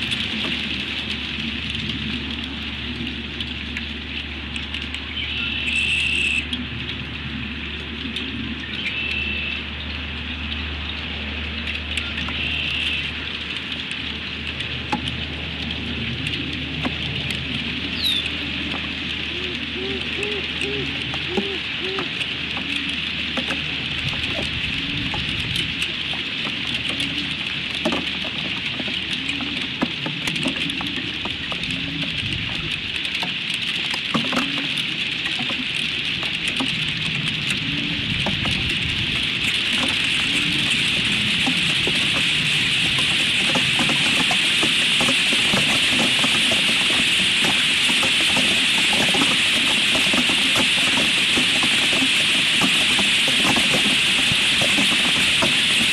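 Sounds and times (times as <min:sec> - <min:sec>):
hail and rain pattering on sticks: 0:00.0 - 0:55.9
owl hooting low: 0:19.3 - 0:22.1.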